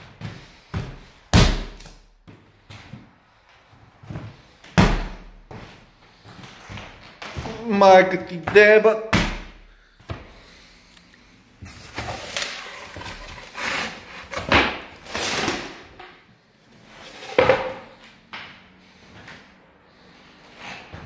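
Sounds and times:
handling rustling and scraping: 11.6 - 15.6.

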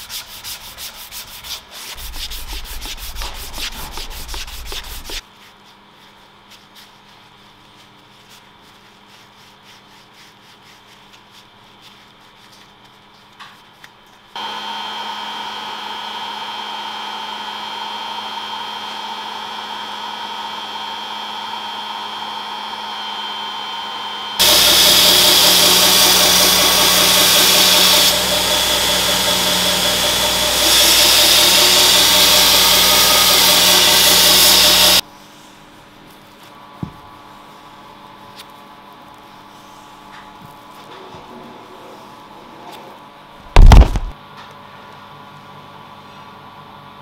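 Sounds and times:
paper towel rubbing leather: 0.0 - 14.3
heat gun blowing: 22.8 - 35.0
belt grinder grinding metal: 24.4 - 35.0.

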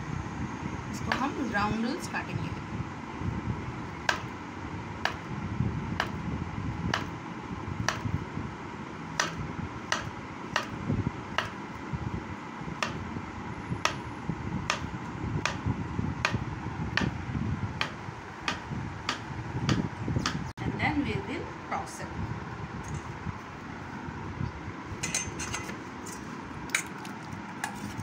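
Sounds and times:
blade tapping wooden board: 9.2 - 10.7, 17.8 - 20.4.

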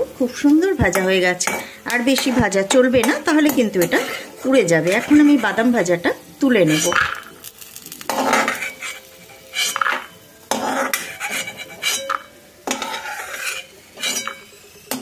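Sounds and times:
metal spatula scraping metal pan: 0.9 - 5.7, 6.5 - 7.3, 8.0 - 15.0.

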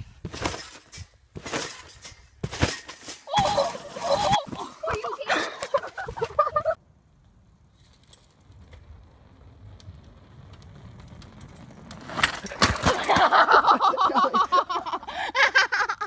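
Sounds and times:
bicycle tyres rolling on wooden planks: 0.0 - 15.8
bike crash with sharp knocks: 0.2 - 4.7, 11.9 - 13.6
person crying out: 3.3 - 5.5.

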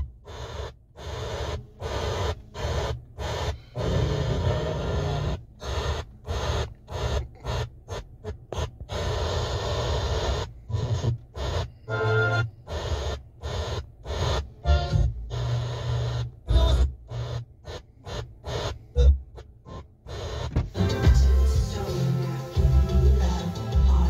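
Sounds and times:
hissy radio bursts: 0.0 - 24.0.

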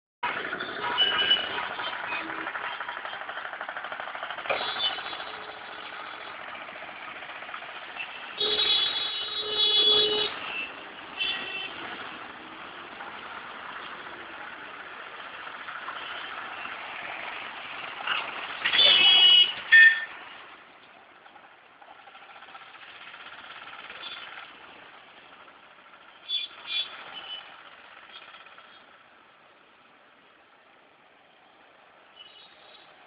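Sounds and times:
busy street traffic: 0.2 - 33.0
vehicle horns honking: 0.6 - 2.4, 4.5 - 6.0, 7.9 - 11.9, 18.6 - 20.2, 26.2 - 27.6.

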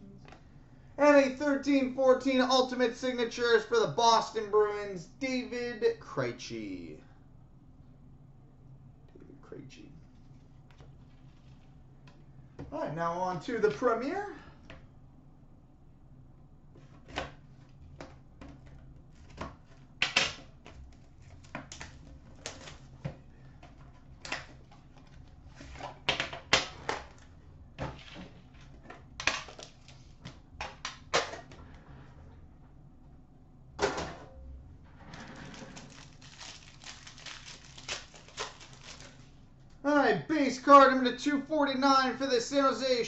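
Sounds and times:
clicks and crackles of plastic and tin: 28.6 - 31.3, 35.3 - 39.3
cellophane crinkling: 35.2 - 39.4.

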